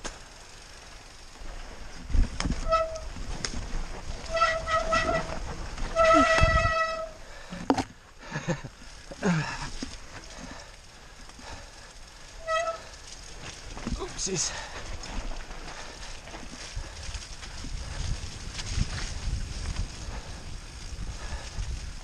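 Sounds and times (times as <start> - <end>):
bike rattling over rough trail: 0.0 - 22.0
bike brakes squealing: 2.5 - 3.1, 4.2 - 7.2, 12.4 - 13.0.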